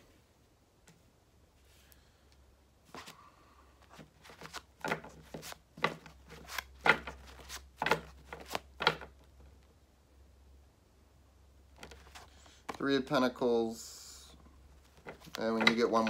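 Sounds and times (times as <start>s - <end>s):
cards being shuffled: 3.8s - 9.3s, 11.7s - 12.9s, 14.8s - 16.0s.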